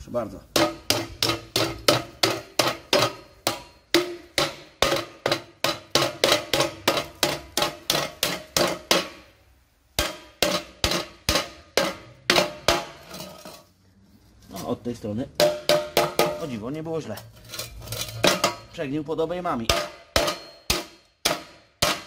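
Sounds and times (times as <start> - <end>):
hammer beating on metal: 0.5 - 9.3, 10.0 - 13.6, 15.4 - 16.6, 18.2 - 18.8, 19.6 - 22.0.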